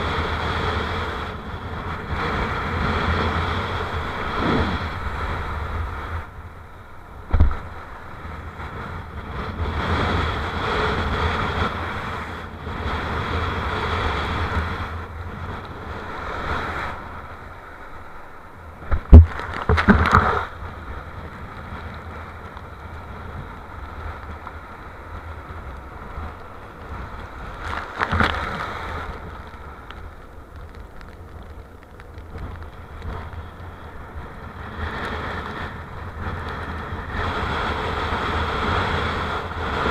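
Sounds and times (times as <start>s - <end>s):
wind buffeting microphone: 0.0s - 39.9s
surf and water spray rushing: 2.1s - 6.3s, 8.7s - 21.0s, 23.7s - 30.1s.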